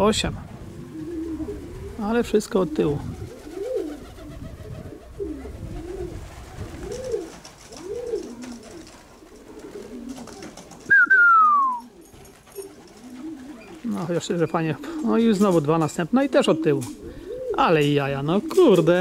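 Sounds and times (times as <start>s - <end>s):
pigeons cooing: 0.6s - 19.0s
wings flapping: 0.9s - 15.7s
whistle gliding down: 10.9s - 11.9s.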